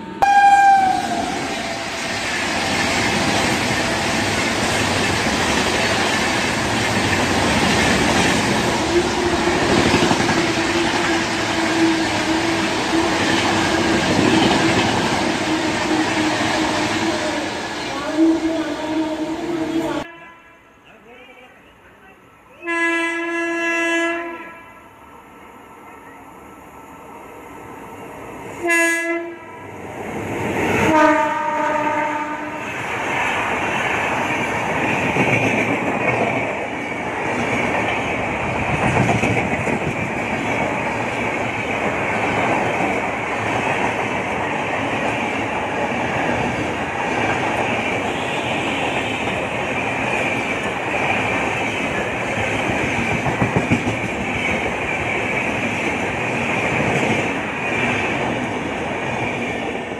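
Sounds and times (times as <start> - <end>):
locomotive horn blowing: 0.0 - 1.7, 22.6 - 24.8, 28.6 - 29.5, 30.9 - 32.6
train rumbling past: 0.0 - 20.1, 23.9 - 59.9.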